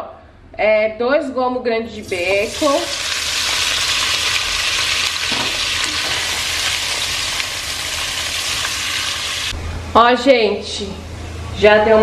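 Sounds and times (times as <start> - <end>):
bacon sizzling in a pot: 2.0 - 9.6.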